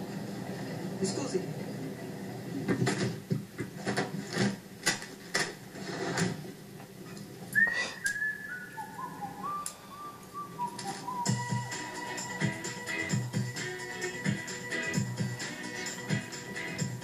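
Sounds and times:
person whistling a tune: 7.6 - 11.9.

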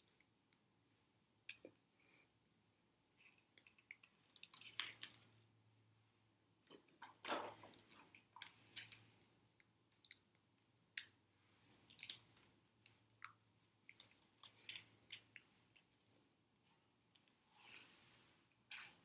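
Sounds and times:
mouth clicks and lip smacks: 3.3 - 5.3, 8.1 - 11.2, 11.8 - 16.2
clothing rustling: 17.3 - 19.0.

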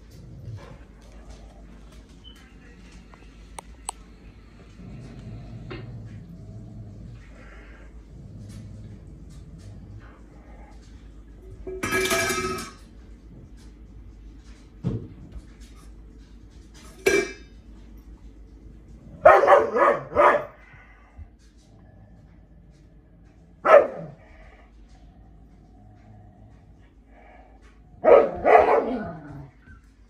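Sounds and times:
dog barking: 19.2 - 20.6, 23.6 - 24.2, 28.0 - 29.2.

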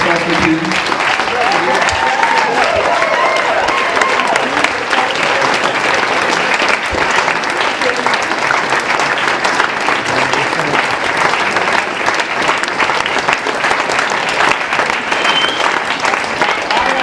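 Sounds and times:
audience applauding: 0.0 - 17.0.

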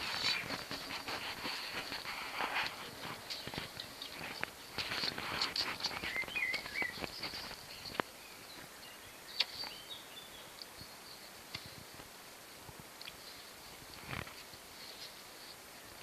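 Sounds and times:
small birds chirping: 0.0 - 12.2.

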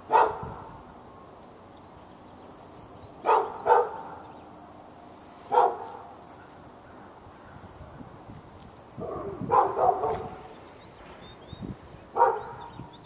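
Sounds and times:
dog barking: 0.1 - 0.7, 3.2 - 4.3, 5.5 - 6.0, 9.0 - 10.5, 12.2 - 12.7.

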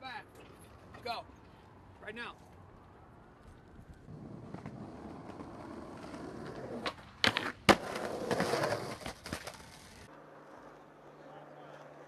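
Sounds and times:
skateboard wheels rolling on concrete: 0.2 - 12.0
skateboard grinding on concrete ledge: 4.1 - 11.1
skateboard popping and landing: 4.1 - 11.2.

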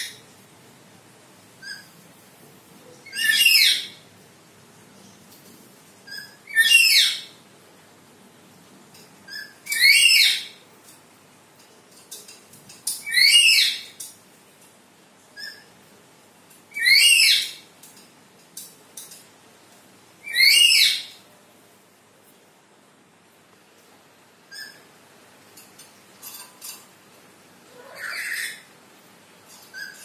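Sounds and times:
bird shrill whistled calls: 6.1 - 7.2, 20.3 - 21.1.

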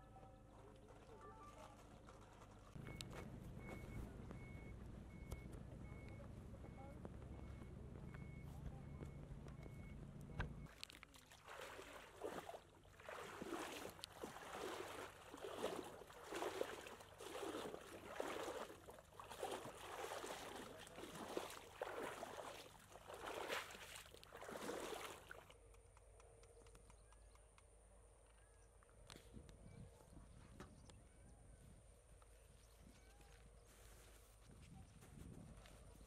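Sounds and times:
water sloshing from wading: 0.4 - 6.7, 10.5 - 25.6.

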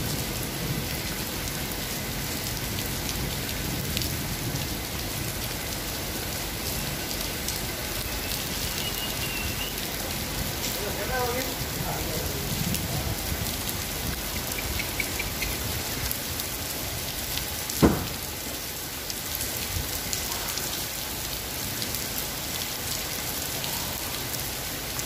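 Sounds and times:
heavy rain on pavement: 0.0 - 25.0
sharp knock: 17.8 - 18.2.

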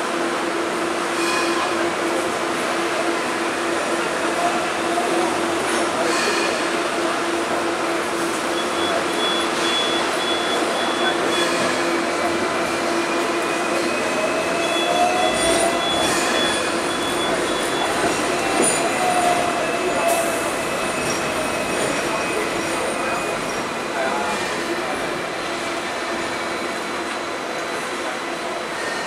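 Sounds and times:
tram rumbling on rails: 0.0 - 29.0.

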